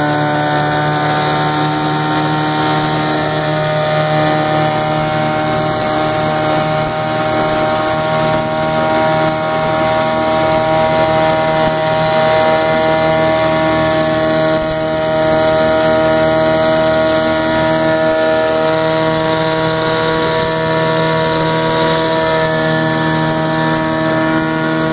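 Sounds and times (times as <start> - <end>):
outboard motor running: 0.0 - 24.9
wind: 0.0 - 24.9.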